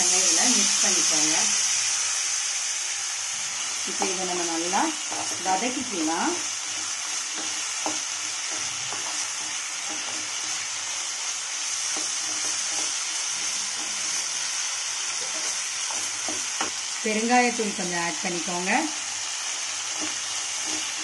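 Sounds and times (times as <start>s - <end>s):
potatoes sizzling in oil: 0.0s - 21.0s
spatula scraping and tapping pan: 5.0s - 16.9s, 19.6s - 21.0s.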